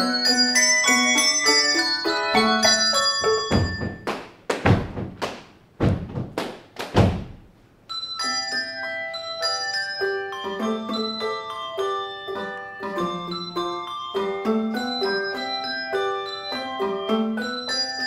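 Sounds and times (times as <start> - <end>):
handbells ringing chords: 0.0 - 4.1, 7.9 - 18.0
handbell percussive hits: 0.0 - 4.2.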